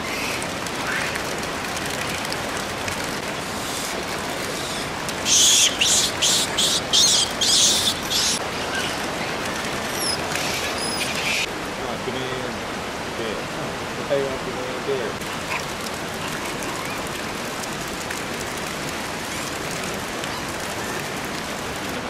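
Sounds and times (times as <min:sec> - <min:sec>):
flowing water rushing: 0:00.0 - 0:22.0
small bird chirping: 0:04.5 - 0:09.0.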